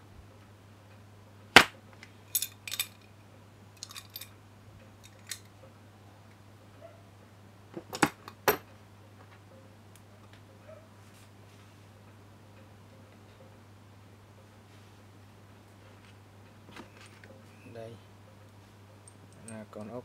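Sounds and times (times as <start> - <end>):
metal wrench clicking and clacking: 3.8 - 4.3.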